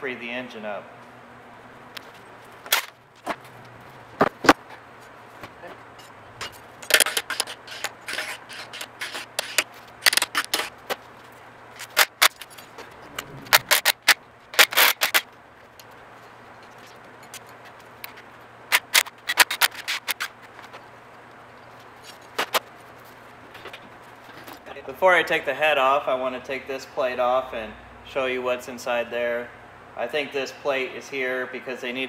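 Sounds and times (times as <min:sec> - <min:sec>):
hand tools clanking on metal: 0:05.6 - 0:09.6.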